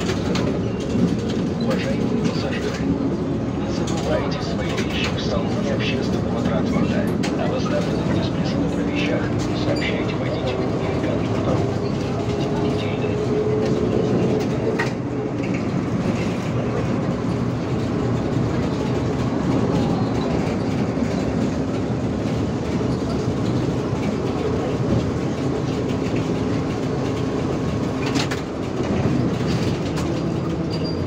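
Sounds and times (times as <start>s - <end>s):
trolleybus running noise: 0.0s - 31.0s.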